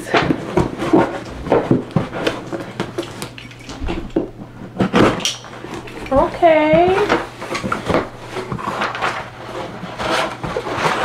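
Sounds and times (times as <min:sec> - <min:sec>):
cardboard box rustling and scraping: 0:00.2 - 0:02.6, 0:05.8 - 0:11.0.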